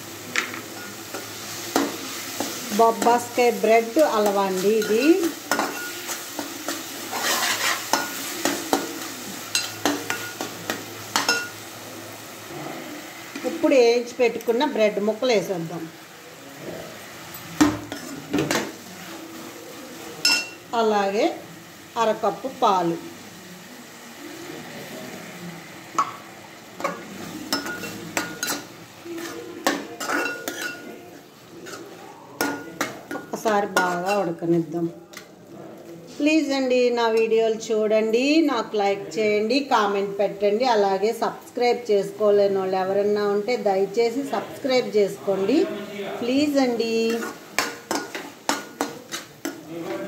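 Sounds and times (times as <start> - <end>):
soft sizzle: 0.0 - 50.0
metal spoon clanking in a pot: 4.2 - 11.6, 20.2 - 20.6, 26.8 - 30.9, 31.6 - 34.3, 47.1 - 49.7.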